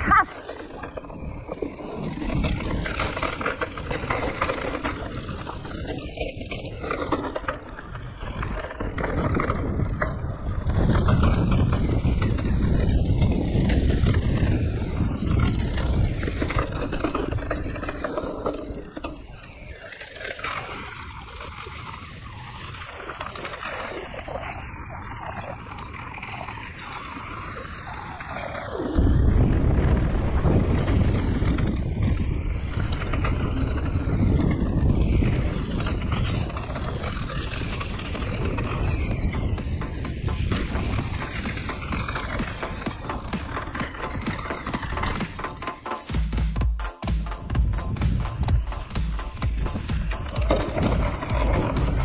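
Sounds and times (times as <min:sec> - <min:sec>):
bike tyres rolling over dirt and stones: 0:00.0 - 0:52.0
bike frame rattling: 0:00.4 - 0:20.9, 0:30.6 - 0:46.0, 0:47.4 - 0:52.0.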